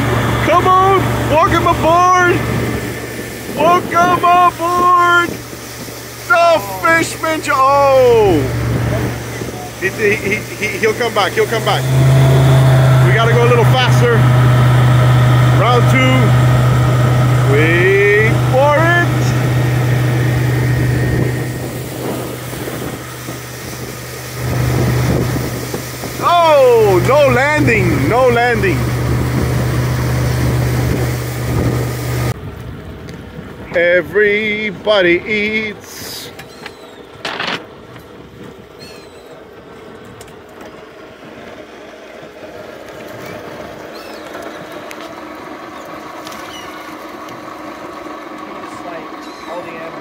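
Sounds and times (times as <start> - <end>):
rush of wake: 0.0 - 32.4
boat engine idling: 0.0 - 50.0
outboard motor humming: 0.0 - 50.0
wind: 0.0 - 50.0.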